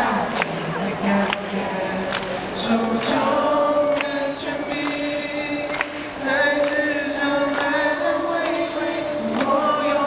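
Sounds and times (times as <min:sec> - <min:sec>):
voices singing over a pa system: 0:00.0 - 0:10.0.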